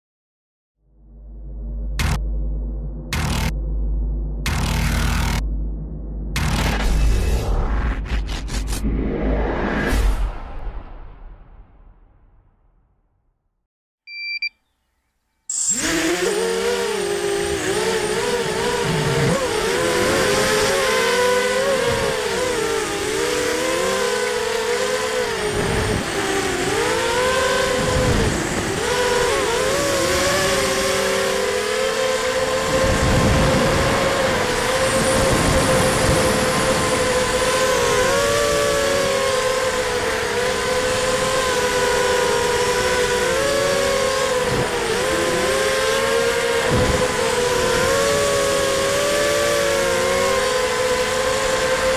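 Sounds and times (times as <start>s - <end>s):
quadcopter motors whining: 2.0s - 2.2s, 3.1s - 3.5s, 4.5s - 5.4s, 15.5s - 51.9s
short beep: 14.1s - 15.9s.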